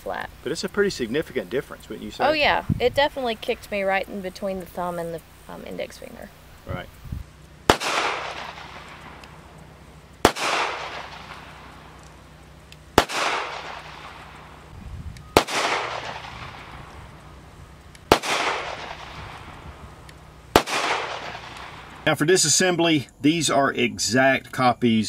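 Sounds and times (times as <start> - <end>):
pistol shots with echo: 7.7 - 9.4, 10.2 - 12.0, 13.0 - 14.6, 15.3 - 17.1, 18.1 - 19.7, 20.5 - 22.0.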